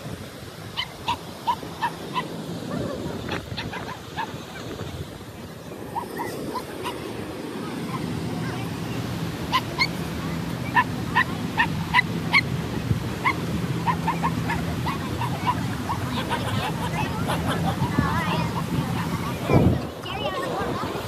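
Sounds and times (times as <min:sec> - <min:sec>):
surf washing: 0:00.0 - 0:21.0
small dog yapping: 0:00.8 - 0:03.0, 0:03.6 - 0:04.7, 0:06.0 - 0:07.1, 0:09.5 - 0:10.0, 0:13.2 - 0:17.0.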